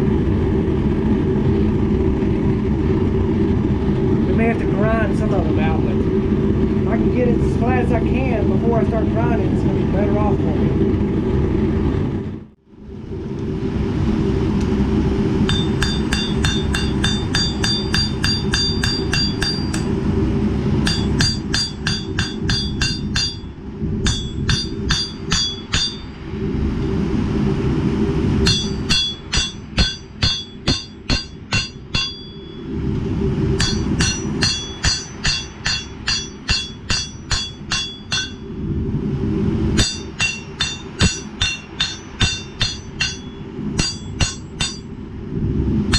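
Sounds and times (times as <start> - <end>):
steady low rumble: 0.0 - 45.9
hammer striking steel on anvil: 15.5 - 19.9, 20.8 - 26.1, 28.4 - 32.6, 33.6 - 38.4, 39.8 - 44.9.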